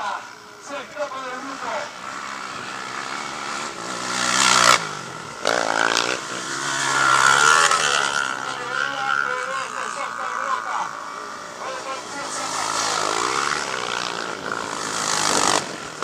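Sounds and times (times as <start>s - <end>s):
quad engines revving: 0.3s - 16.0s.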